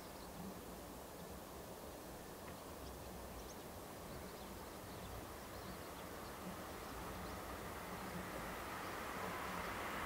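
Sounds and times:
faint bird chirps: 0.0s - 1.4s, 2.4s - 9.8s
distant jet engines at take-off: 3.1s - 10.0s.

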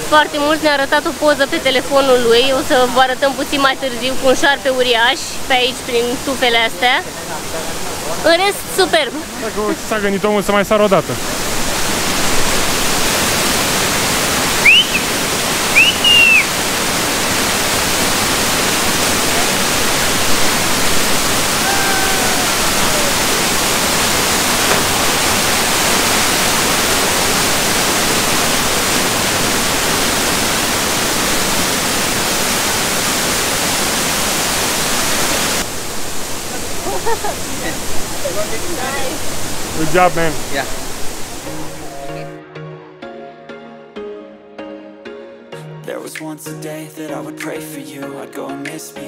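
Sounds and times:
waterfall rushing: 0.0s - 42.3s
short high chirps: 14.6s - 15.1s, 15.8s - 16.5s
faint falling call: 14.6s - 16.5s.

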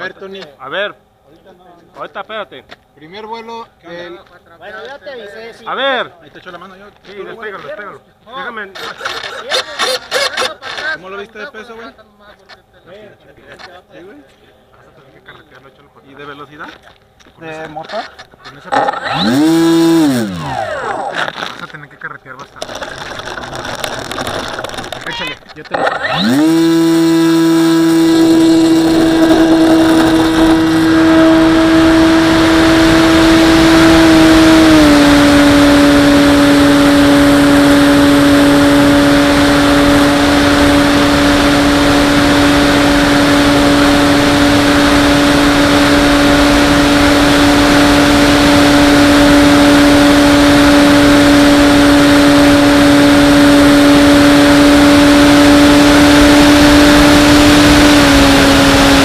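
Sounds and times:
electric motor propeller whine: 18.7s - 21.5s, 25.7s - 59.0s.

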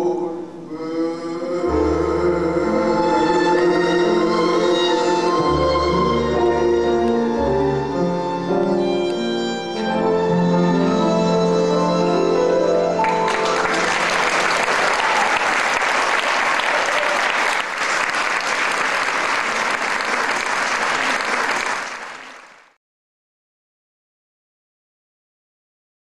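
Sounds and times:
tango ensemble music: 1.3s - 15.4s
audience applauding: 13.0s - 22.8s.

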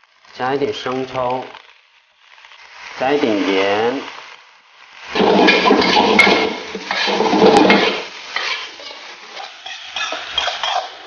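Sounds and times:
rice sizzling in a hot pan: 0.0s - 11.0s
metal spatula scraping a wok: 5.0s - 11.0s.

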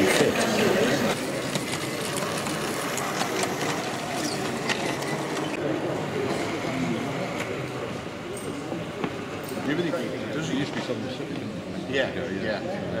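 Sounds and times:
model train motor whirring: 0.0s - 5.6s
wheels clicking on track: 0.0s - 10.0s.

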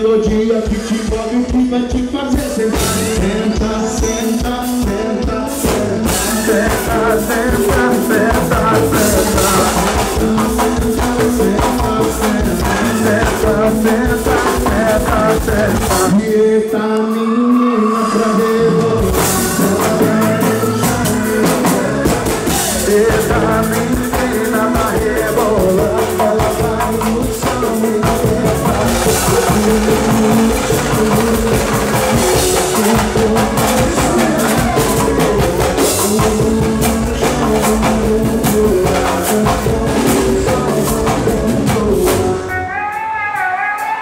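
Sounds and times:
live band playing loudly: 0.0s - 44.0s
person singing: 0.0s - 44.0s
hand drums beating: 5.2s - 16.1s, 18.8s - 42.4s.

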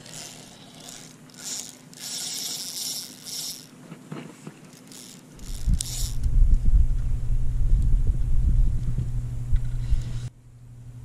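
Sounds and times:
loud low rumble on microphone: 5.6s - 11.0s.

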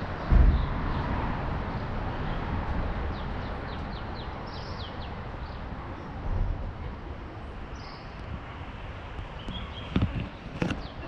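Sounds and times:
steady rumbling background: 0.0s - 10.4s
bird chirping: 3.1s - 6.1s, 7.7s - 8.2s, 9.3s - 11.0s.

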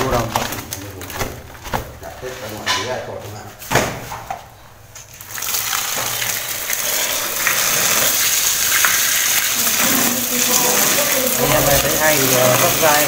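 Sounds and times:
water gushing into plastic basin: 5.1s - 13.0s.

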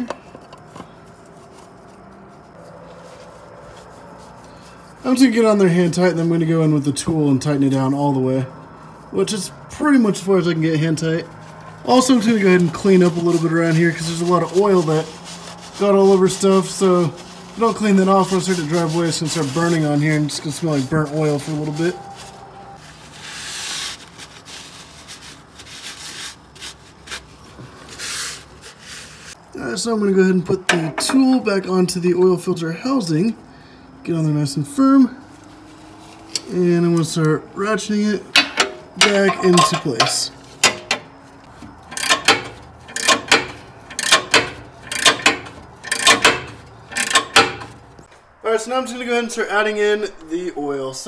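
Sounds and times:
towel wiping metal oil pan: 9.3s - 29.4s, 37.9s - 48.0s
ratchet wrench clicking: 41.8s - 47.8s.

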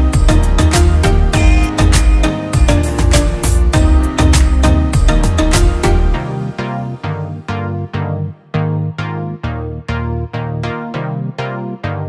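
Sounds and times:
music with heavy bass beat: 0.0s - 9.4s.

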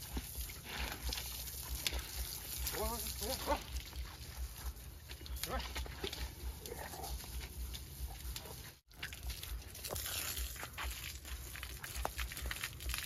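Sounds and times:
hose water spraying and splashing: 0.0s - 13.0s.

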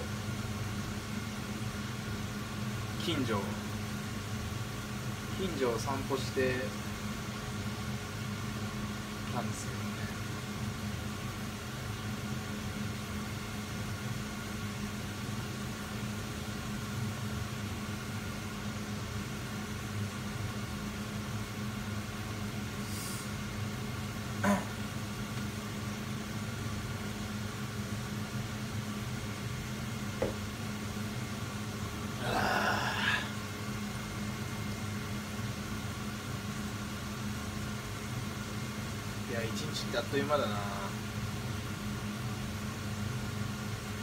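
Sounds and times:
person yawning: 24.4s - 24.8s, 32.2s - 33.4s.

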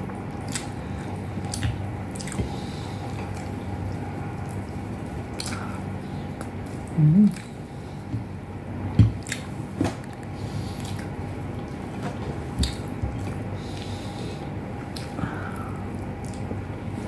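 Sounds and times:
person chewing: 0.3s - 7.7s, 9.1s - 11.9s, 12.6s - 17.0s
wet mouth smacks: 0.4s - 0.7s, 5.3s - 5.7s, 9.2s - 9.5s, 16.2s - 16.5s.

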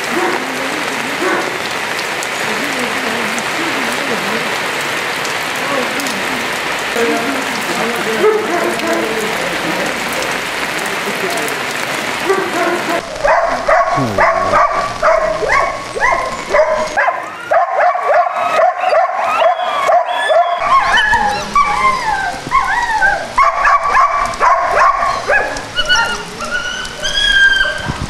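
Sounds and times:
dogs barking and yelping: 8.1s - 9.2s, 12.1s - 28.0s
dogs whining: 12.4s - 28.0s.

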